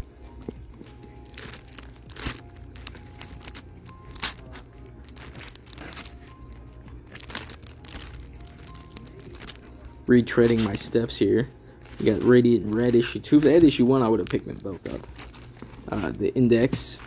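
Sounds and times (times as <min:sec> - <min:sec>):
quiet background music: 0:00.0 - 0:17.0
plastic bags crinkling: 0:00.2 - 0:17.0.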